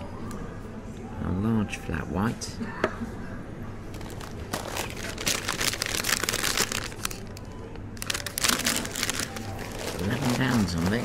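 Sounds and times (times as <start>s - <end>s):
food packaging crinkling: 3.9s - 11.0s.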